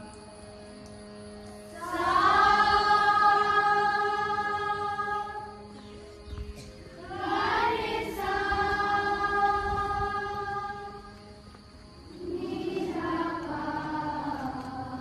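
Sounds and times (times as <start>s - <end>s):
group singing a prayer: 1.7s - 5.9s, 7.0s - 11.3s, 12.1s - 15.0s.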